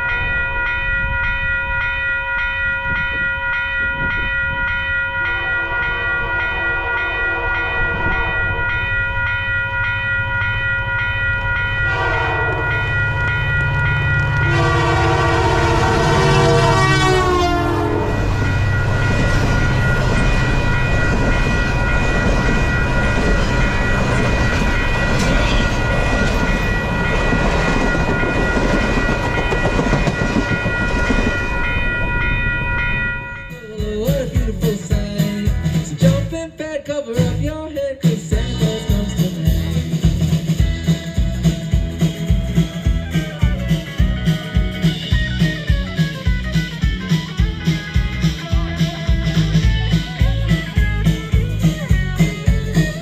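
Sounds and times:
steady ringing tone: 0.0s - 34.4s
train cars rumbling and clattering: 0.0s - 36.5s, 37.2s - 53.0s
locomotive horn blasts: 11.8s - 13.3s, 14.1s - 21.0s.

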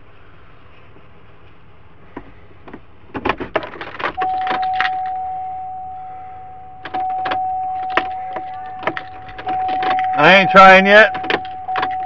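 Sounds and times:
keys jangling: 3.7s - 5.2s, 6.8s - 10.5s, 11.1s - 12.0s
truck warning chime: 4.2s - 12.0s.

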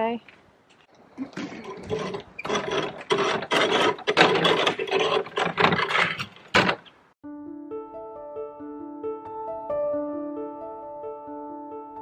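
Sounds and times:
piano music: 7.2s - 12.0s.

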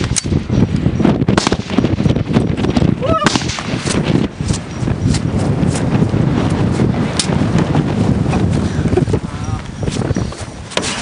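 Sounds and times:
rifle shots: 1.3s - 2.1s, 3.2s - 4.0s.

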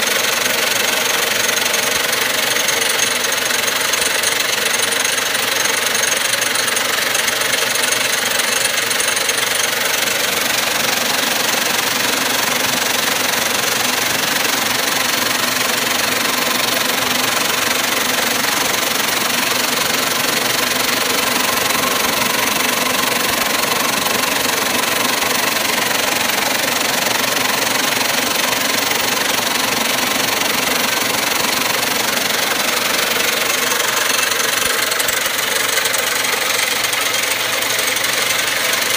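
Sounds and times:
vibratory tumbler running: 0.0s - 38.9s.

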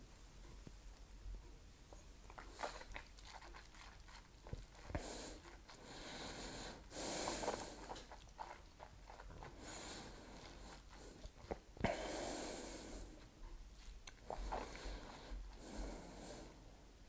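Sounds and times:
faint breaths through the nose: 4.8s - 8.1s, 9.4s - 16.9s
lip and tongue clicks: 14.0s - 14.6s.

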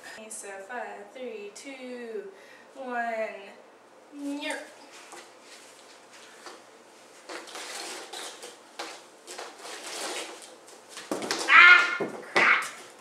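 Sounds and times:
high-pitched yelp: 11.4s - 12.8s.

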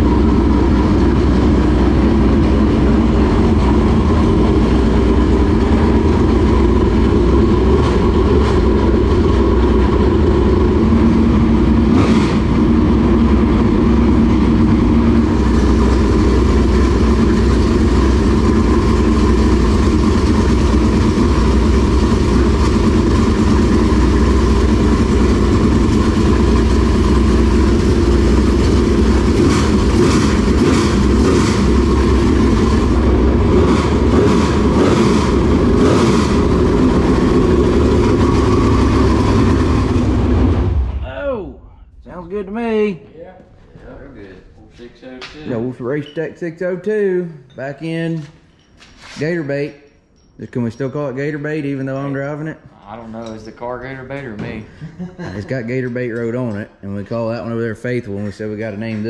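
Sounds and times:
race car engine idling: 0.0s - 41.0s.

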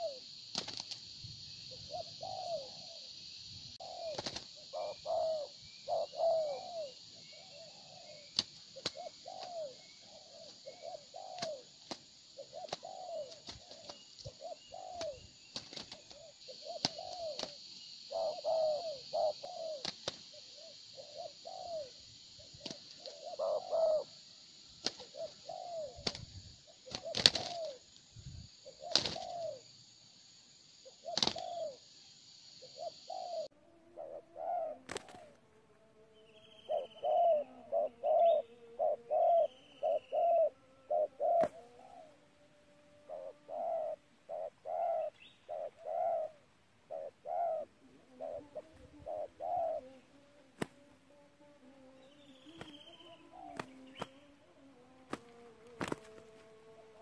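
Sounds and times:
doves cooing: 0.0s - 29.7s, 30.8s - 31.9s, 32.5s - 35.4s, 36.2s - 57.0s
steady high hiss: 0.0s - 57.0s
wing flaps: 0.5s - 1.1s, 4.1s - 4.5s, 11.2s - 17.6s, 26.0s - 27.8s, 28.8s - 29.5s, 31.1s - 31.6s, 55.1s - 56.4s.

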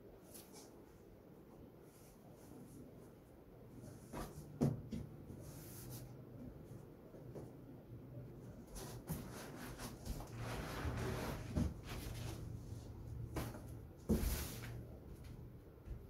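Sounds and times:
cardboard and packing rustling: 8.6s - 15.3s.

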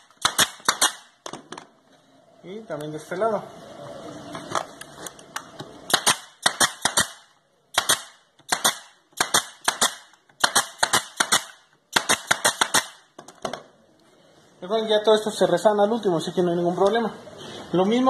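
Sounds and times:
nail gun shots into wood: 0.0s - 1.4s, 5.9s - 13.0s.

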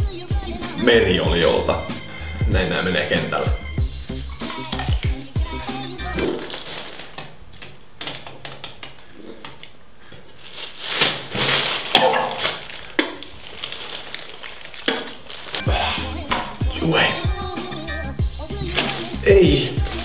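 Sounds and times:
plastic bag crinkling: 6.1s - 9.5s, 10.3s - 17.5s, 18.4s - 20.0s.

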